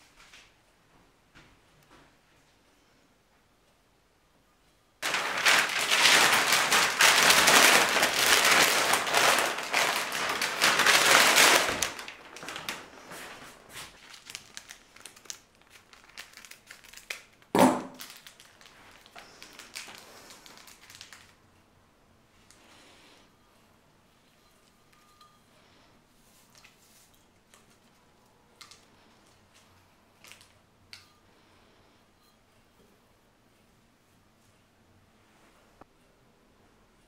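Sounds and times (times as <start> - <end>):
packaging crinkling: 5.0 - 21.4, 28.6 - 30.6
sharp knock: 17.6 - 18.0.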